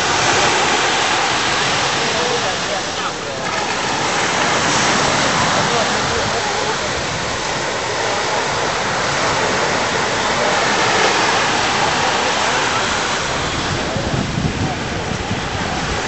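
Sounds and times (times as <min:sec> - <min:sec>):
water at the shore: 0:00.0 - 0:16.0
wind: 0:00.0 - 0:16.0.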